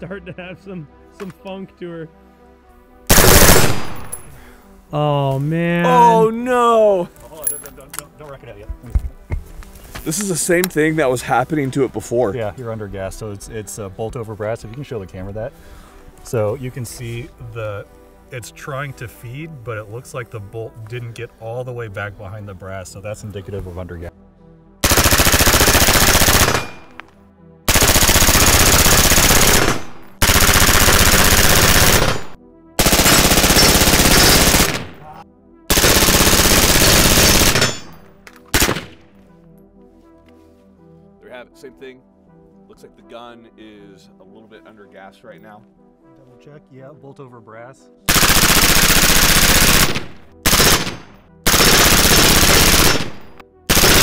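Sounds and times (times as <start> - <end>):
rifle automatic fire bursts: 3.1 - 4.0, 24.8 - 26.9, 27.7 - 35.0, 35.7 - 37.9, 38.6 - 38.9, 48.1 - 54.0.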